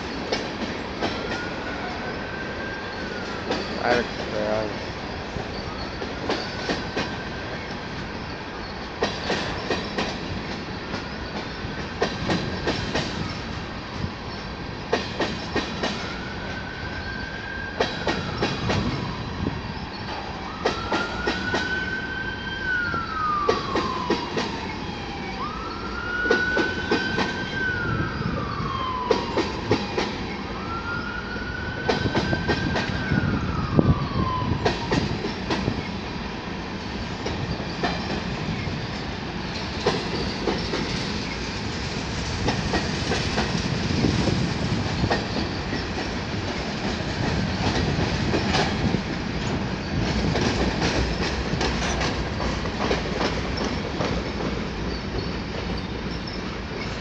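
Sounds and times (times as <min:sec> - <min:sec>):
freight train wheels rumbling: 0:00.0 - 0:57.0
siren wailing: 0:20.4 - 0:35.2.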